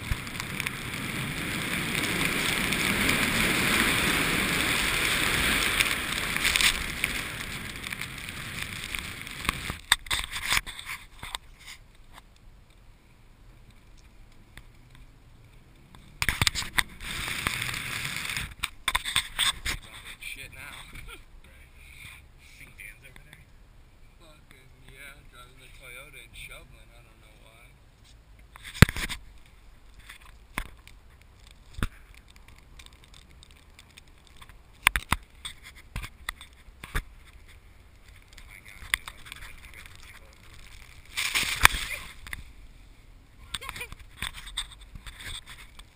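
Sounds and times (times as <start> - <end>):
snow spray rushing over car: 0.0 - 9.9, 16.2 - 18.6, 37.9 - 42.8
car engine rumbling: 0.0 - 10.4, 11.1 - 45.9.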